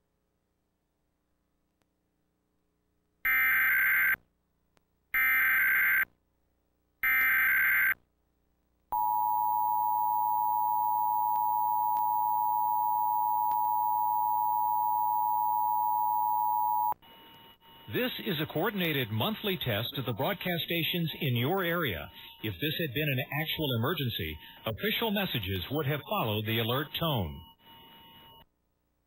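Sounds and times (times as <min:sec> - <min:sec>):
data tone bursts: 0:09.0 - 0:28.4
two-tone attention signal: 0:21.2 - 0:28.4.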